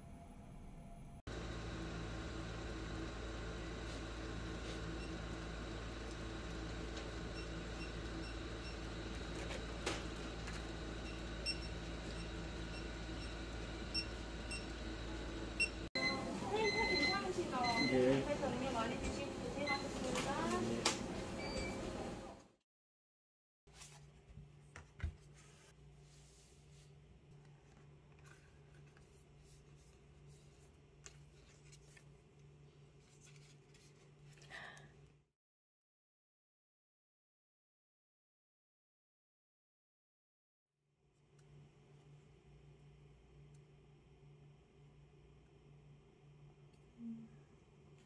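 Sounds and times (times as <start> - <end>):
low room hum: 0.0 - 22.4, 41.1 - 48.0.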